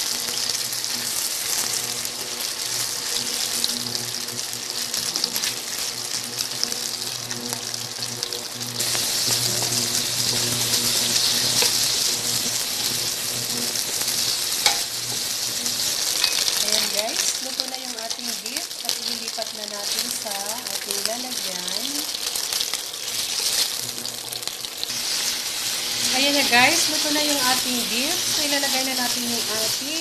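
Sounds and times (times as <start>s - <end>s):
beef sizzling in a pan: 0.0s - 30.0s
wooden spatula scraping a pan: 8.8s - 17.3s.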